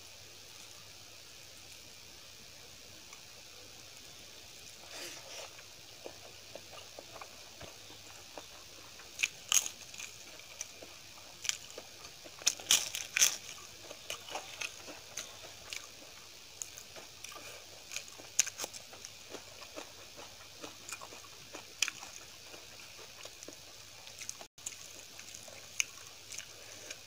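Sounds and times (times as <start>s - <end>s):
chewing clicks: 5.6s - 27.0s
crisp papad crunching: 11.4s - 19.9s.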